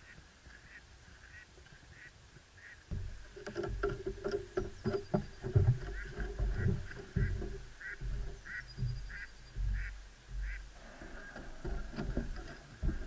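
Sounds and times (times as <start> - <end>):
footsteps on wooden boardwalk: 2.9 - 13.0.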